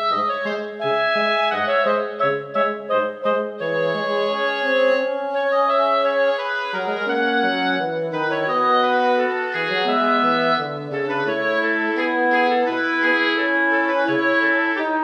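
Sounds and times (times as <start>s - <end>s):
instrumental background music: 0.0s - 15.0s.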